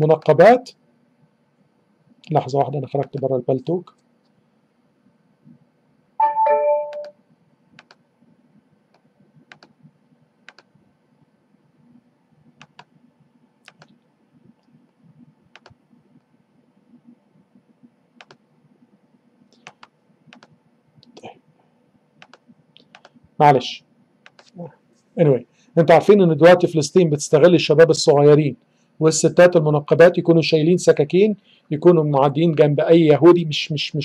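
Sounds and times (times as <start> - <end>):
faint low hum: 0.0 - 34.0
computer notification chime: 6.2 - 7.2.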